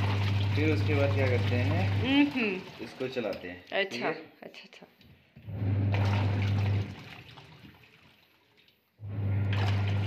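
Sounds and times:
washing machine motor humming: 0.0 - 3.2, 5.4 - 7.4, 9.0 - 10.0
water churning: 0.0 - 3.4, 5.6 - 10.0.

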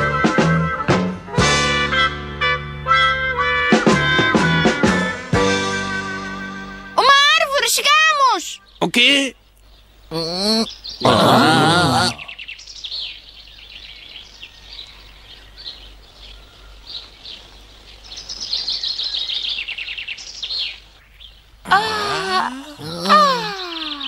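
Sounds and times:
loud wavering cry: 10.1 - 12.3, 21.7 - 24.0.

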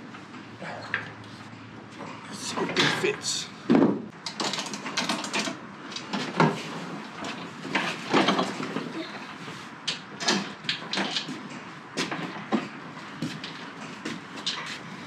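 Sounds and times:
knocks and thumps on wooden deck: 3.7 - 4.0.

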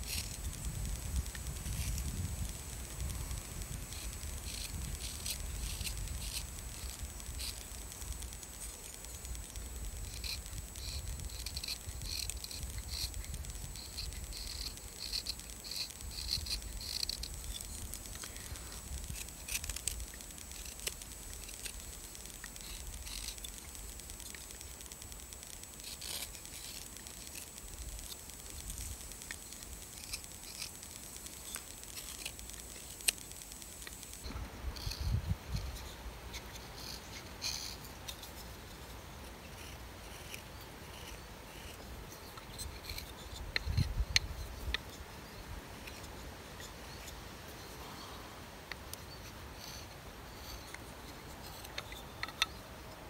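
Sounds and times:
knife whittling wood: 0.0 - 38.5.

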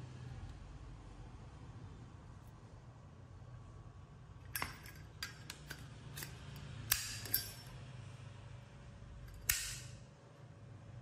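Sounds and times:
lighter metal clicks and clinks: 4.5 - 7.8, 9.2 - 10.0.

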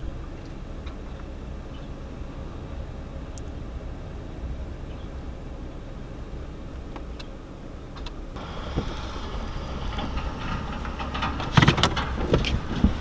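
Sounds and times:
vehicle engine hum and road noise: 0.0 - 13.0
sharp knocks and clicks: 8.0 - 13.0.

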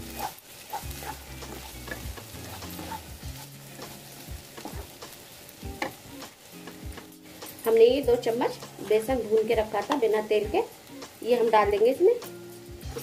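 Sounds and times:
light frying sizzle: 0.0 - 13.0
wooden spatula scraping pan: 0.1 - 5.0.

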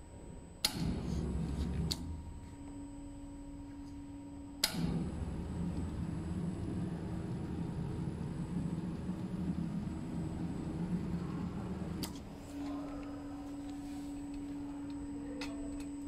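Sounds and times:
sewing machine rumbling: 4.7 - 14.9.

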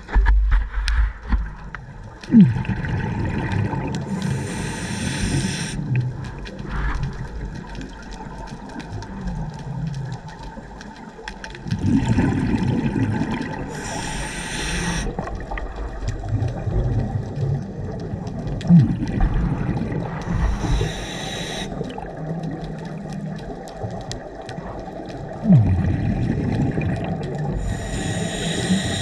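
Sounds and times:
exhaled air bubbling: 1.4 - 29.0
hissing regulator inhale: 4.1 - 5.8, 13.7 - 15.3, 20.2 - 21.9, 27.5 - 29.0.

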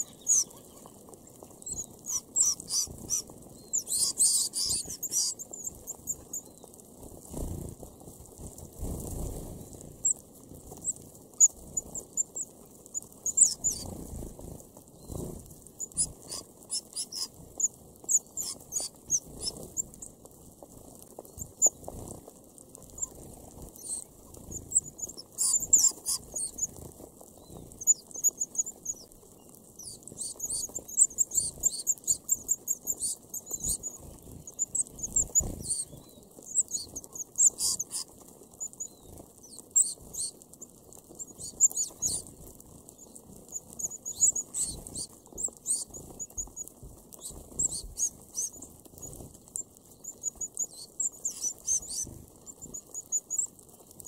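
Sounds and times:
finches peeping: 0.0 - 7.5, 10.8 - 14.3, 15.0 - 20.0, 21.2 - 22.1, 22.8 - 26.8, 27.4 - 49.2, 49.9 - 54.0
birds pecking in seed husks: 0.0 - 54.0.

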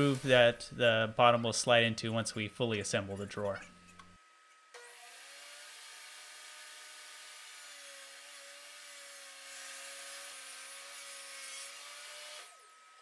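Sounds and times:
saw cutting plywood: 0.0 - 0.5, 4.8 - 12.6
table saw motor hum and whine: 0.0 - 0.7, 3.8 - 13.0.

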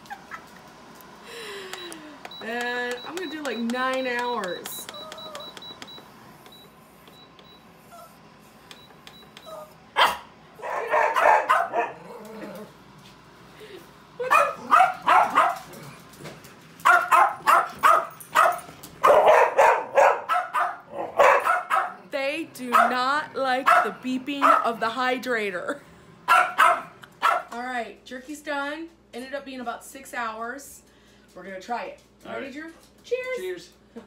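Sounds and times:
dog barking: 10.0 - 12.0, 14.2 - 15.7, 16.8 - 22.0, 22.7 - 23.0, 23.6 - 24.7, 26.3 - 27.6.

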